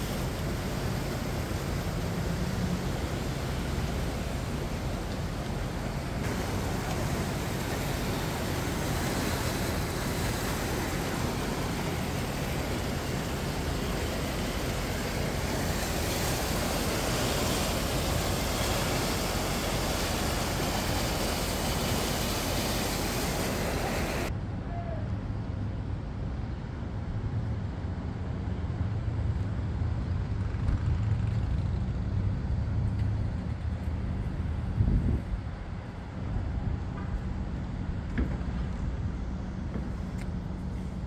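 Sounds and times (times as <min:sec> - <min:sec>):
river rushing under bridge: 0:00.0 - 0:24.8.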